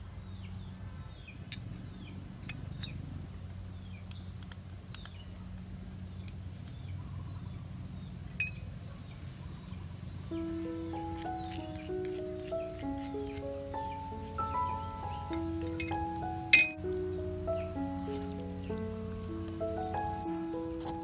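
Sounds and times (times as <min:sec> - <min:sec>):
low steady hum: 0:00.0 - 0:21.0
small birds chirping: 0:00.0 - 0:21.0
bottle and spoon tapping clay bowl: 0:16.6 - 0:16.8.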